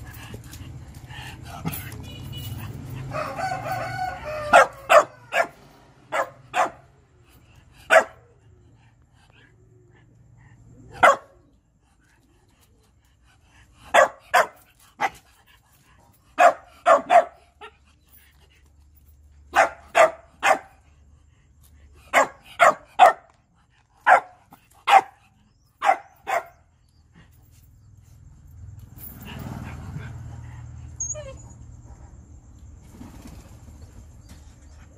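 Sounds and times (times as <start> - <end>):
dog barking: 4.4 - 6.9, 7.9 - 8.3, 10.9 - 11.4, 13.9 - 15.2, 16.4 - 17.8, 19.5 - 20.8, 22.1 - 23.3, 24.0 - 25.2, 25.8 - 26.7.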